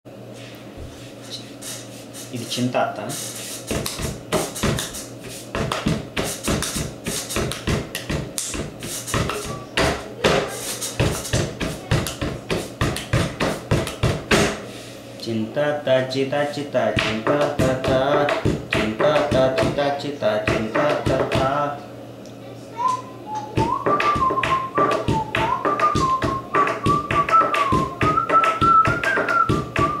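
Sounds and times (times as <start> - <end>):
hands drumming on wooden table: 3.7 - 14.6, 17.0 - 19.8, 20.5 - 21.5, 23.5 - 30.0.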